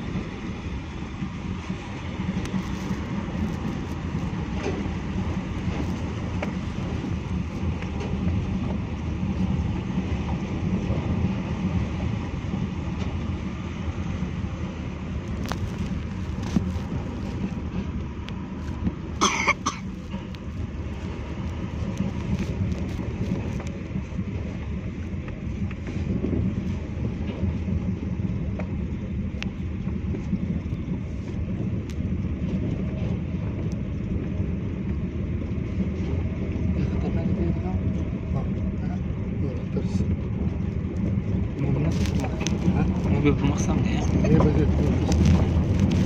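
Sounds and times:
car driving over gravel: 15.3s - 18.0s, 40.2s - 46.0s.

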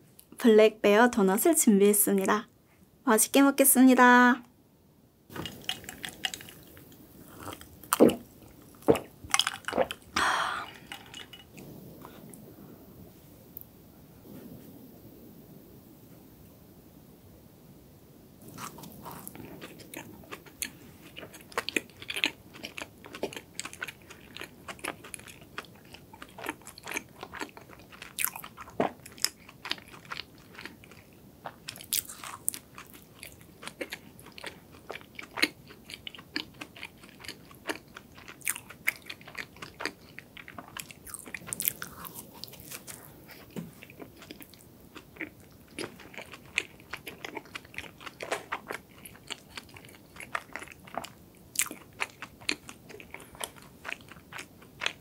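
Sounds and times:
biting and chewing dough: 18.4s - 55.0s.

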